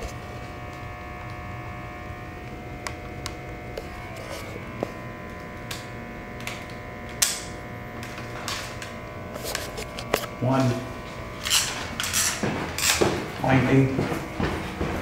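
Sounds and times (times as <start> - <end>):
electrical hum: 0.0 - 15.0
footsteps on stairs: 9.6 - 15.0.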